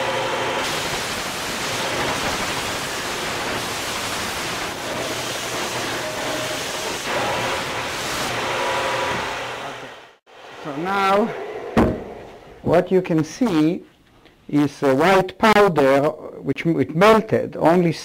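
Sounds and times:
belt sander grinding metal: 0.0s - 9.8s.

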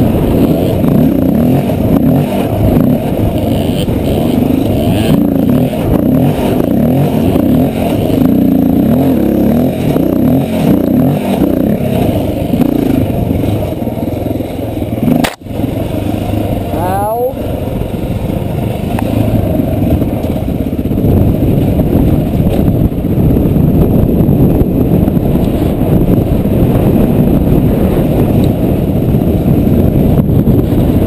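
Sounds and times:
dirt bike engine revving: 0.0s - 31.0s
sharp click: 15.2s - 15.5s.

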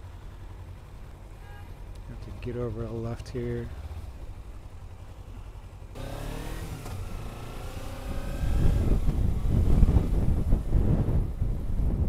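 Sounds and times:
motorcycle engine accelerating: 2.1s - 12.0s
wind rumble on microphone: 6.2s - 12.0s.

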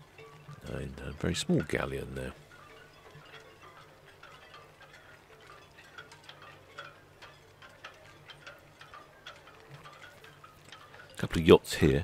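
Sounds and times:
light clicks and clinks: 0.0s - 12.0s.

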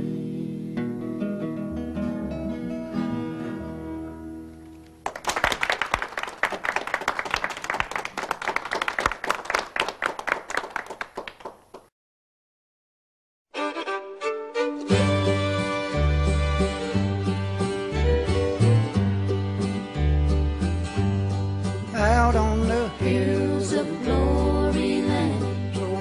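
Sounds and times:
fast plucked-string picking: 13.6s - 22.9s
bluegrass gospel music: 13.6s - 26.0s.

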